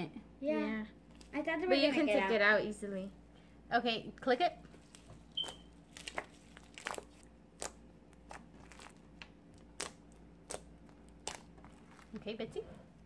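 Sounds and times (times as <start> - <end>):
slime crackling clicks and pops: 7.6 - 11.5.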